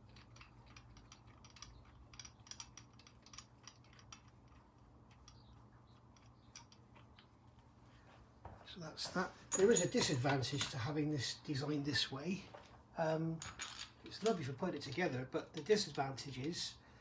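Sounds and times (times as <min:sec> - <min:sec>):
light metallic clicks of bolts: 0:00.0 - 0:07.3, 0:13.4 - 0:16.6.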